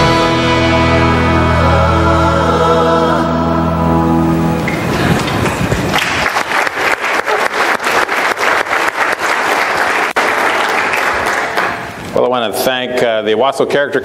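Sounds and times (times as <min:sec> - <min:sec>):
music track: 0:00.0 - 0:05.9
audience applauding: 0:04.6 - 0:12.1.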